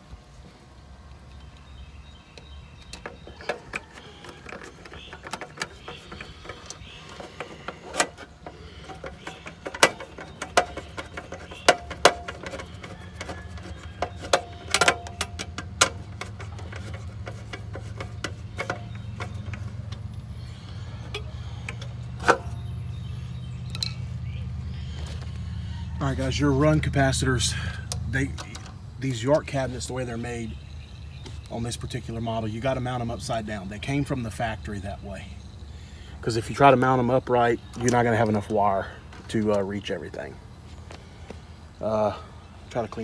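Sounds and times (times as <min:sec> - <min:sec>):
wires and metal parts rattling: 0:02.8 - 0:22.6.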